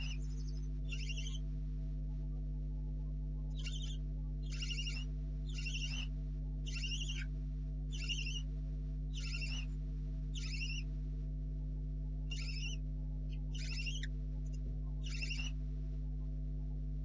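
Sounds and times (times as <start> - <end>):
electrical hum: 0.0 - 17.0
owlets hissing begging calls: 0.9 - 1.4, 3.6 - 6.1, 6.7 - 7.3, 7.9 - 8.4, 9.2 - 9.7, 10.4 - 10.8, 12.3 - 12.8, 13.5 - 14.1, 15.0 - 15.5.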